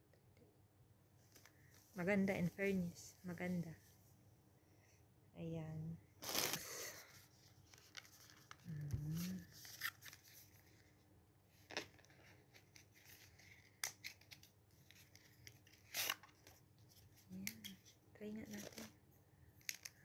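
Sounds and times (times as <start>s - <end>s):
packaging crinkling and tearing: 6.2s - 10.8s, 11.6s - 16.6s
woman humming: 8.6s - 9.5s.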